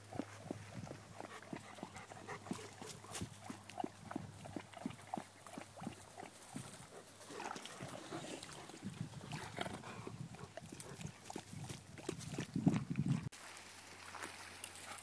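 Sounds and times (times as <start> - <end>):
dog snuffling and panting: 0.1 - 12.5.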